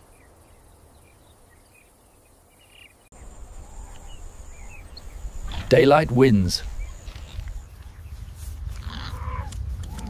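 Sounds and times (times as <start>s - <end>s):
faint chirps: 0.0s - 7.9s.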